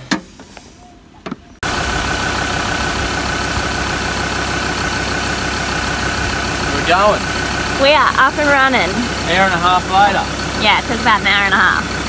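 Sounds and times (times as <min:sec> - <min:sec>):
car engine idling with whine: 0:00.8 - 0:12.0.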